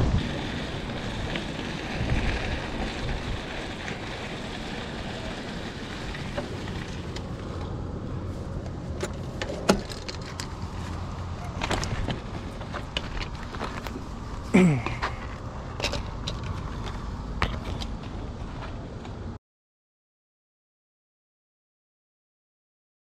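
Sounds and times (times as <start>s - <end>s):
wind on microphone: 0.0s - 6.9s
tyres crunching on gravel: 0.0s - 19.3s.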